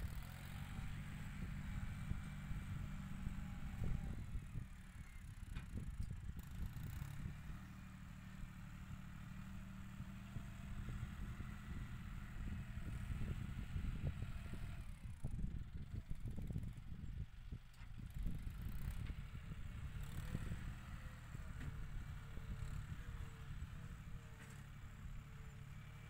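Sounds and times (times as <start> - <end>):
tractor diesel engine running: 0.0 - 26.0
wind buffeting microphone: 10.6 - 21.8.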